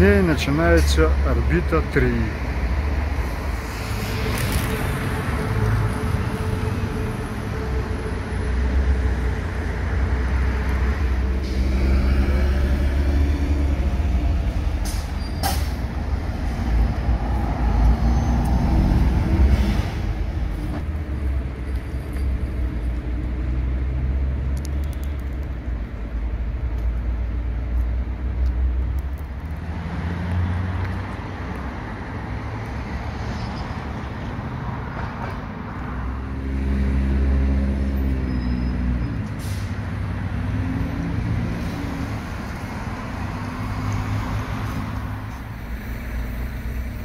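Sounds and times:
cars and bus passing: 0:00.0 - 0:47.0
low traffic rumble: 0:00.0 - 0:47.0
air brake hiss: 0:14.8 - 0:15.8, 0:39.2 - 0:39.8.

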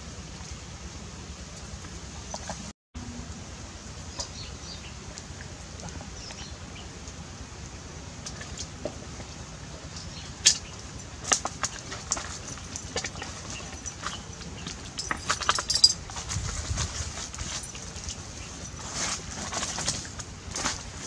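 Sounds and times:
clicks and knocks of metal bowls: 0:11.2 - 0:16.0.

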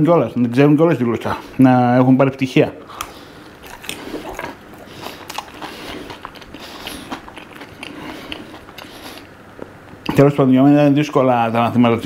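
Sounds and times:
person chewing crunchy food: 0:02.9 - 0:10.0.

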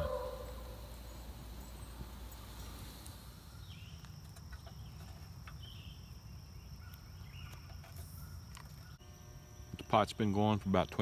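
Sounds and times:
high insect buzz: 0:00.0 - 0:08.3.

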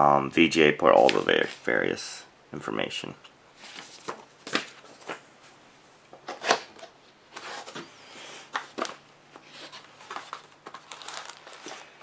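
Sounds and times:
packaging rustling and scraping: 0:06.3 - 0:12.0.

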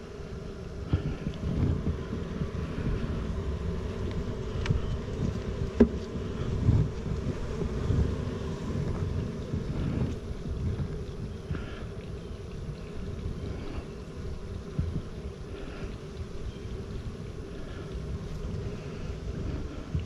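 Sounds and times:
honeybees humming: 0:00.0 - 0:20.0
wind rumble on microphone: 0:00.0 - 0:20.0.

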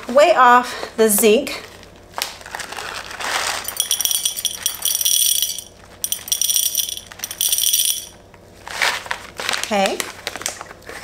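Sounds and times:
plastic bag rustling: 0:01.7 - 0:04.5, 0:08.5 - 0:11.0
pellets pattering into glass beaker: 0:03.5 - 0:08.2.

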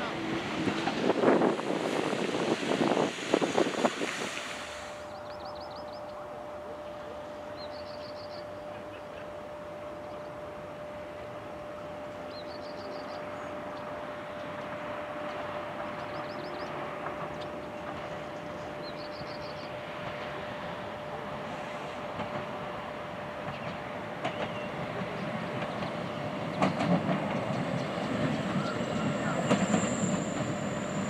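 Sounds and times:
wind noise: 0:00.0 - 0:04.6
diesel railbus engine hum: 0:00.0 - 0:31.0.

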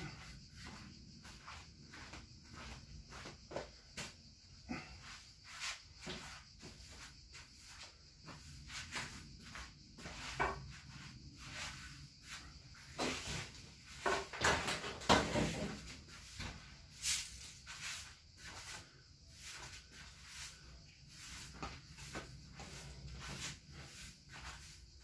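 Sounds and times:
footsteps: 0:00.0 - 0:04.2
household items rustling and knocking: 0:12.9 - 0:16.6.

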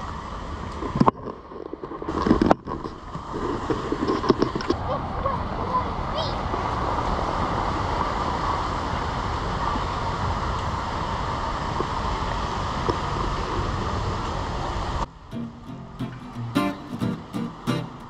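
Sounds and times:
wind noise on microphone: 0:00.0 - 0:15.1
acoustic guitar music: 0:15.1 - 0:18.0.

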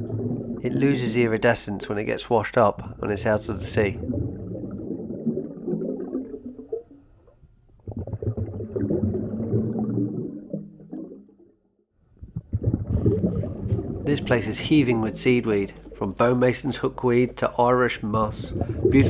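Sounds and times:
underwater breath bubbling: 0:02.8 - 0:07.0, 0:07.8 - 0:11.2, 0:12.2 - 0:16.2, 0:18.2 - 0:19.0.

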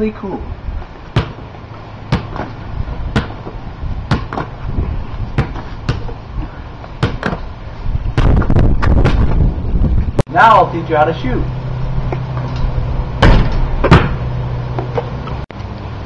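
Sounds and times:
basketball bouncing on concrete: 0:01.1 - 0:06.2, 0:07.0 - 0:07.5, 0:08.1 - 0:09.5, 0:13.2 - 0:14.2.

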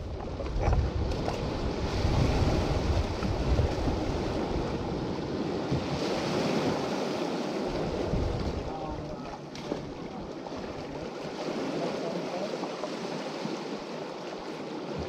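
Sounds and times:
wind buffeting microphone: 0:00.0 - 0:11.2
small waves washing over boulders: 0:00.0 - 0:15.0.

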